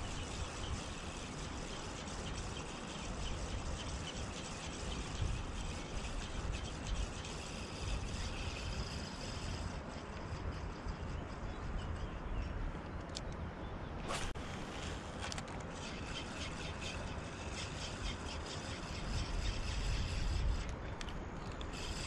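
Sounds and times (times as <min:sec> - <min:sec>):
fishing reel gears rattling: 0:00.0 - 0:10.9, 0:14.7 - 0:22.0
wind on microphone: 0:00.0 - 0:12.6, 0:14.0 - 0:22.0.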